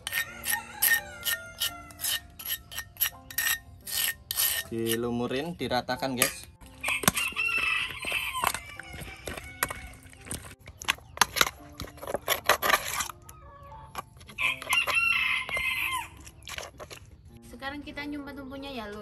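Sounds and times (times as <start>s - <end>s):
rooster crowing: 0.0s - 2.2s, 6.8s - 10.0s, 14.4s - 16.2s.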